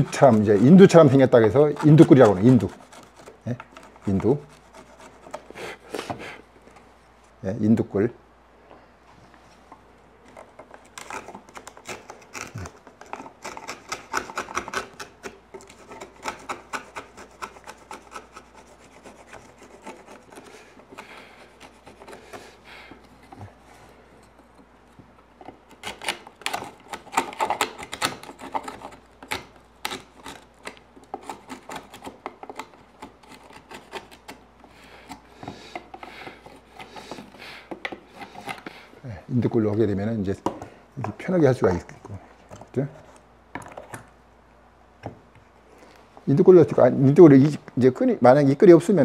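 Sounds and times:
chisel scraping wood: 0.0 - 6.8, 10.3 - 23.3, 25.4 - 38.9.

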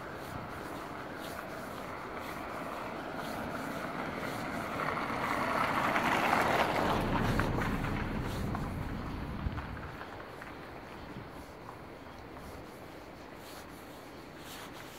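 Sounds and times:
footsteps walking: 0.0 - 14.9
car driving past: 3.8 - 9.9.

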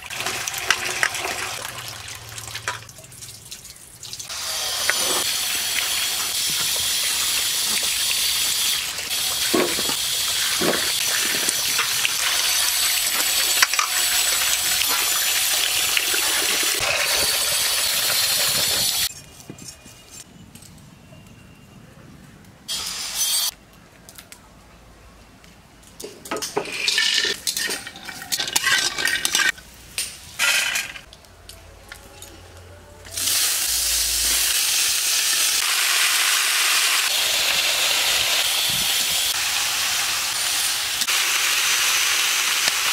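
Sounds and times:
water running in a strong stream: 0.0 - 19.1, 34.5 - 42.9.

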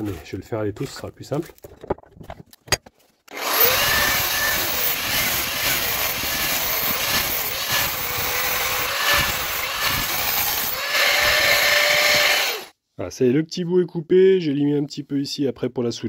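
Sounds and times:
angle grinder cutting steel pipe: 3.3 - 12.7.

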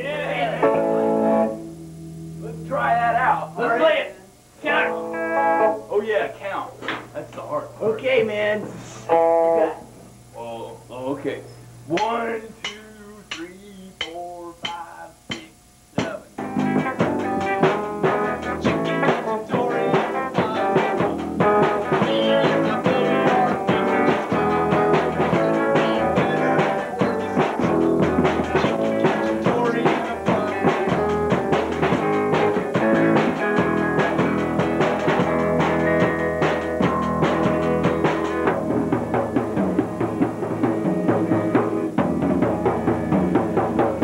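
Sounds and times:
rock band playing: 0.0 - 4.0, 4.6 - 5.9, 9.1 - 9.9, 16.0 - 44.0
electric guitar: 0.0 - 5.9, 8.7 - 10.3, 16.4 - 44.0
drum kit: 11.7 - 44.0.

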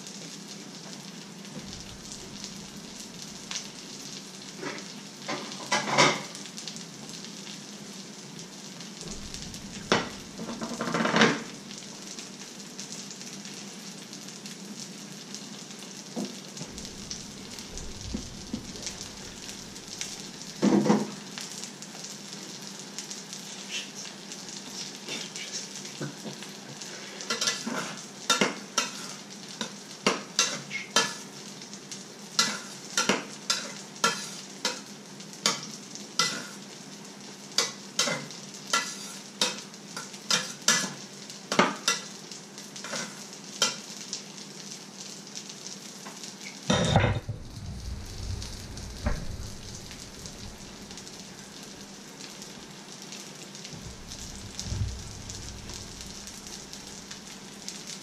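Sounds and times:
food sizzling in a pan: 0.0 - 58.0
kitchenware clattering: 9.6 - 11.5, 46.7 - 47.5
utensil clinking against pans: 32.4 - 34.8, 35.5 - 36.5, 37.6 - 42.1.

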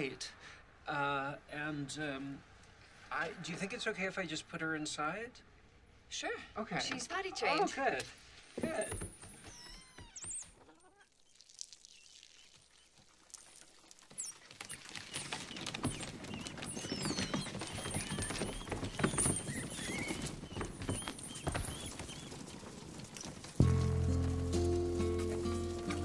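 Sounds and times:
rats scurrying: 8.5 - 26.0
rats squeaking: 8.6 - 23.8.

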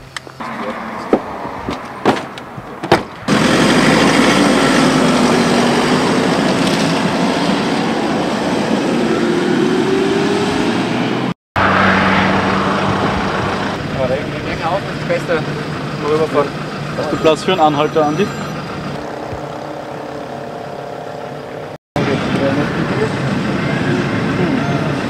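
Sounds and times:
car engine pulling away: 0.3 - 25.0
loud rushing noise: 0.4 - 17.0.

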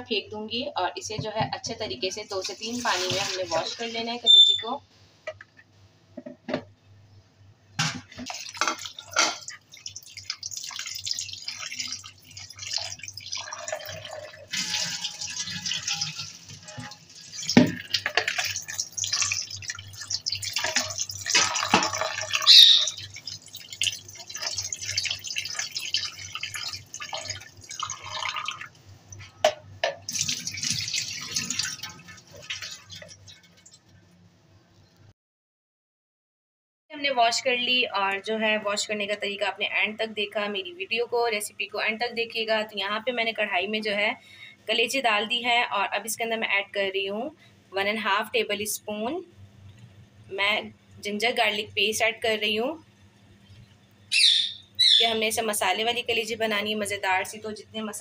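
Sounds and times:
tap water splashing into bowl: 7.8 - 28.7, 29.4 - 33.8.

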